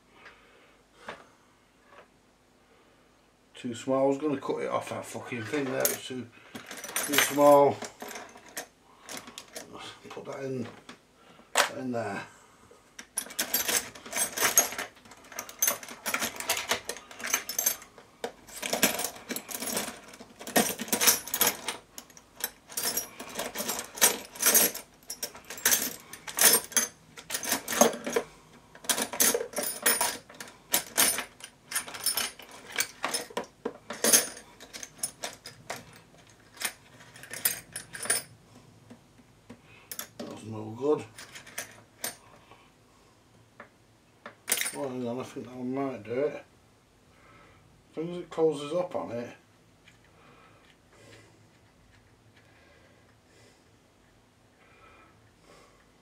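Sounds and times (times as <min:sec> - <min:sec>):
metal drill bits clinking: 0:05.4 - 0:09.8, 0:13.0 - 0:38.4, 0:44.5 - 0:44.9.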